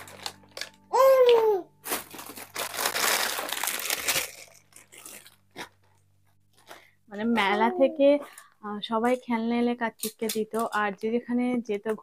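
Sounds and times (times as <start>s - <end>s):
plastic wrappers crinkling: 0.0s - 8.5s.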